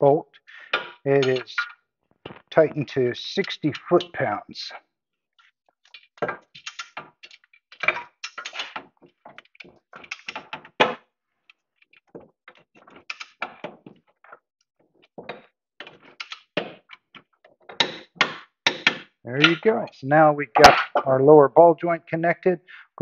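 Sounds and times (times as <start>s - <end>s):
hand tools clinking on metal: 1.1s - 1.7s, 2.5s - 4.3s, 19.4s - 21.1s.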